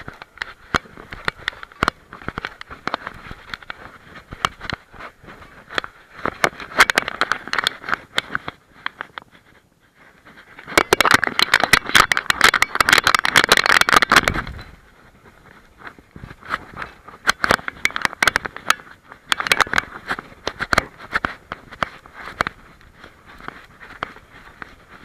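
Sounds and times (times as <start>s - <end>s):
paws clicking on stony path: 0.0s - 25.0s.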